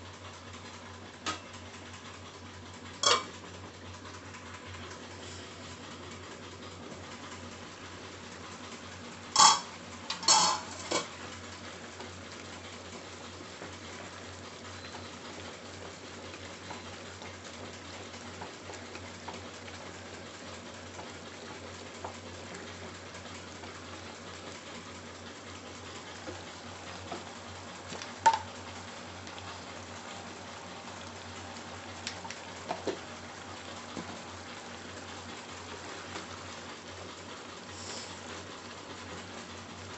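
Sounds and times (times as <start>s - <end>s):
glass bowl clinking on pan: 3.0s - 3.3s, 9.4s - 10.9s.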